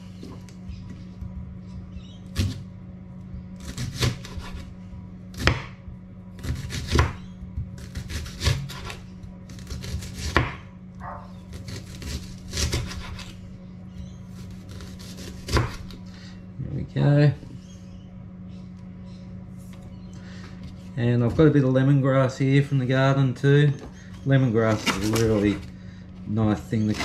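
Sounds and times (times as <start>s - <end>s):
knife slicing onion: 3.6s - 5.8s, 6.4s - 10.6s, 11.5s - 13.4s, 14.4s - 16.0s, 24.6s - 25.7s
knife striking wooden board: 10.3s - 10.6s.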